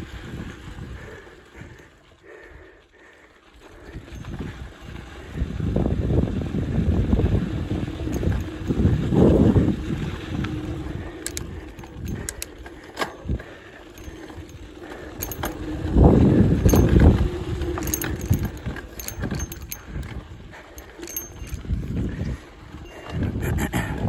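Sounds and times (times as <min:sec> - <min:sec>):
chain and frame rattling: 0:03.8 - 0:05.2, 0:07.1 - 0:23.8
tyres rumbling over dirt: 0:03.8 - 0:23.4.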